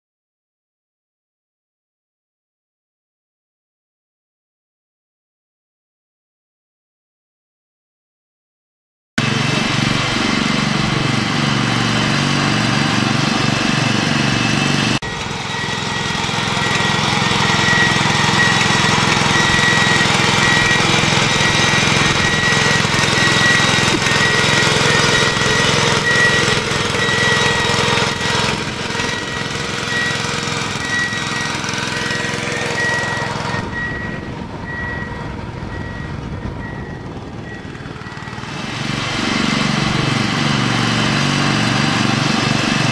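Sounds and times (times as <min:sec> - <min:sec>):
small petrol engine running: 0:09.2 - 0:42.9
steady high whine: 0:15.0 - 0:40.8.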